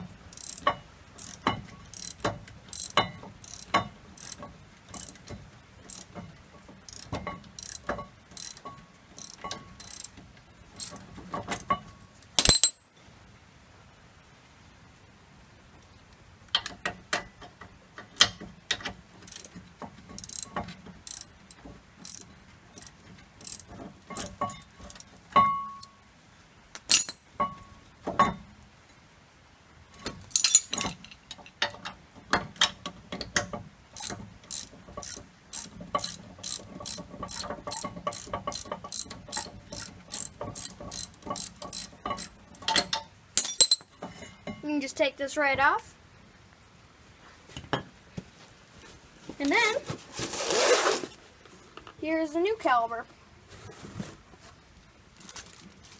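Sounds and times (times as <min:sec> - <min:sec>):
ratchet wrench clicking: 0:00.3 - 0:05.2, 0:05.9 - 0:06.2, 0:06.9 - 0:10.1, 0:10.8 - 0:11.0, 0:19.2 - 0:19.5, 0:20.2 - 0:21.3, 0:22.0 - 0:25.0, 0:34.0 - 0:43.0.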